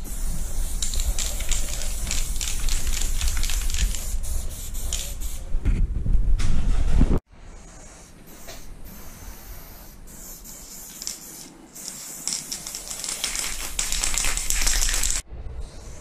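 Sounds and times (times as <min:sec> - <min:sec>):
spray paint can hissing: 0:00.0 - 0:05.4, 0:08.3 - 0:15.2.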